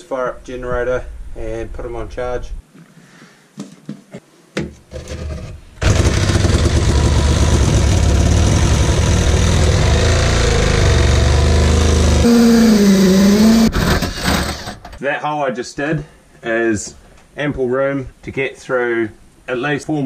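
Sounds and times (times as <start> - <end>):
reciprocating saw cutting timber: 5.0 - 15.0.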